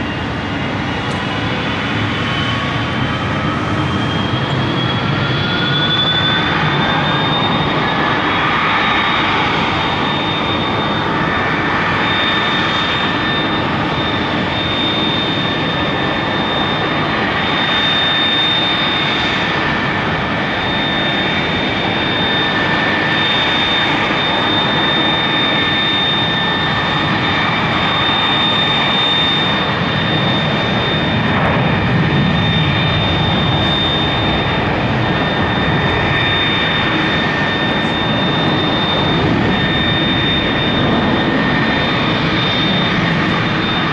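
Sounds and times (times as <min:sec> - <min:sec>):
jet turbine rush with whine: 0:00.0 - 0:43.9.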